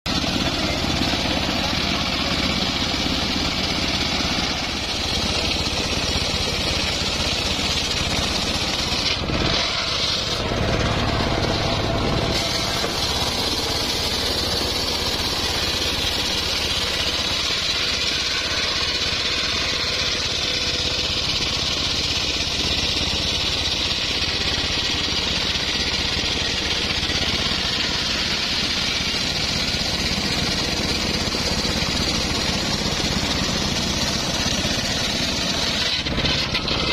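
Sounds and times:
circular sawmill ripping a log: 0.1s - 36.9s.

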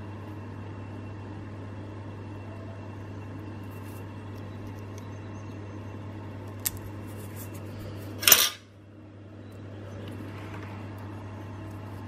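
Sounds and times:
small parts clattering: 8.2s - 8.6s.

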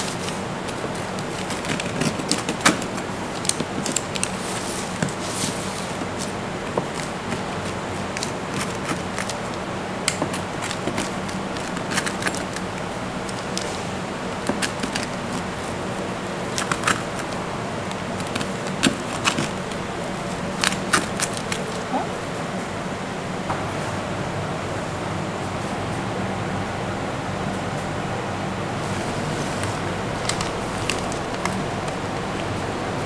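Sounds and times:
pizza cutter crackling through crust: 0.0s - 22.0s, 28.8s - 33.0s
steady background hum: 0.0s - 33.0s.

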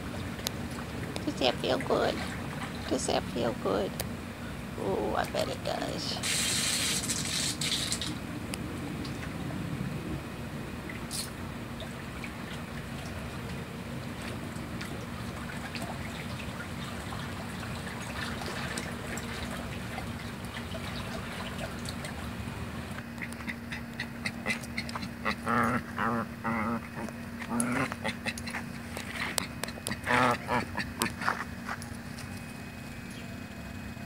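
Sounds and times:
low steady hum: 0.0s - 34.0s
nasal quack-like animal calls: 23.2s - 28.6s, 29.8s - 31.3s.

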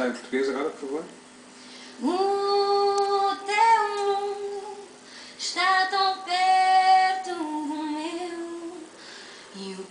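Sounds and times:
woman singing through tv speaker: 2.0s - 8.9s, 9.6s - 9.9s.

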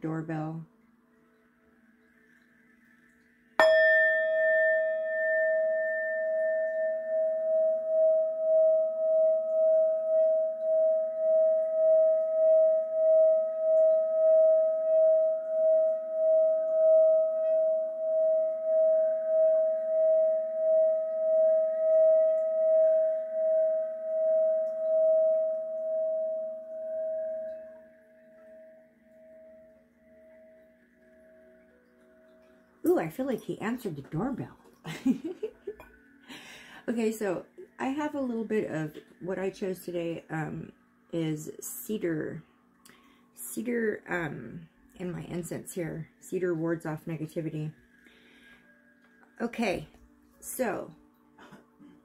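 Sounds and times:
singing bowl ringing tone: 0.1s - 34.5s, 36.8s - 51.2s
singing bowl struck: 3.6s - 34.3s.

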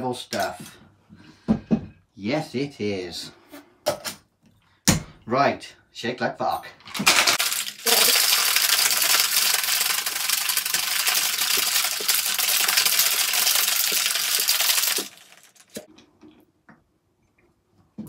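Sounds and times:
ice rattling in cocktail shaker: 7.0s - 15.9s.

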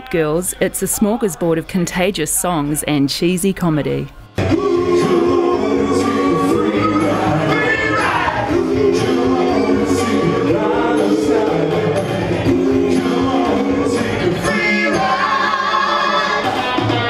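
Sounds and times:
group singing pop song in harmony: 4.4s - 17.0s.

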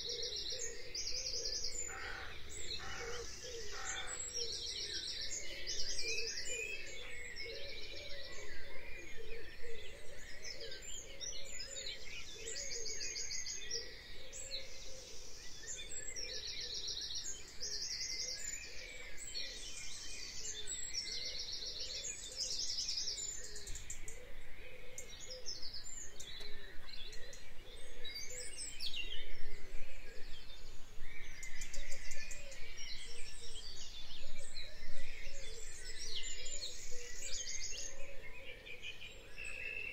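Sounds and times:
birds trilling and chirping: 0.0s - 39.9s.

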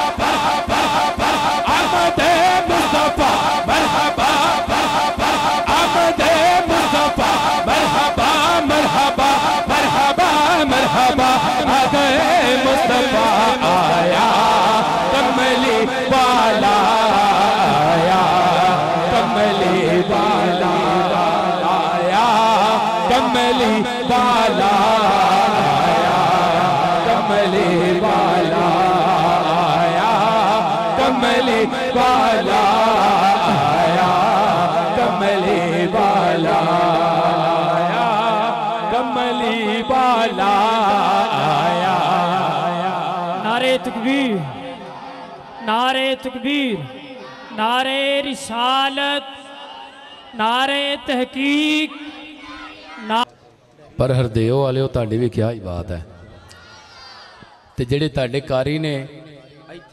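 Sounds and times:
devotional song chanted: 0.0s - 59.9s.

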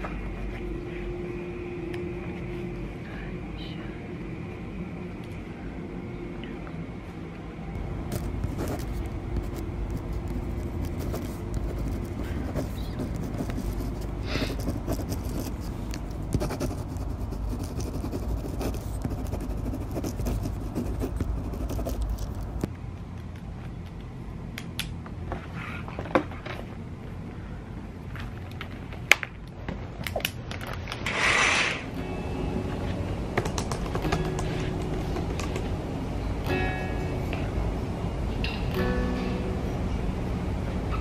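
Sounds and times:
low rumble: 0.0s - 24.0s
pen scratching on paper: 8.1s - 22.7s.

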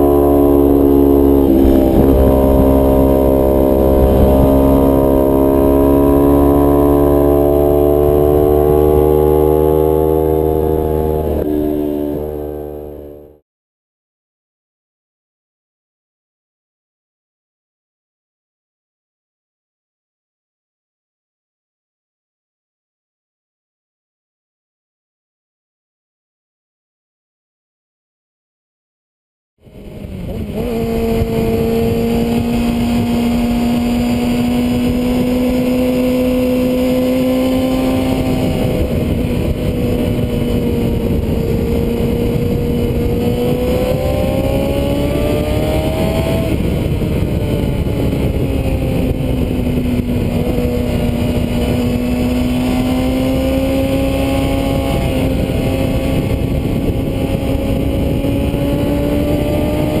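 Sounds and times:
wind noise: 0.0s - 12.8s, 29.6s - 60.0s
motorcycle engine revving: 0.0s - 13.4s, 29.6s - 60.0s.

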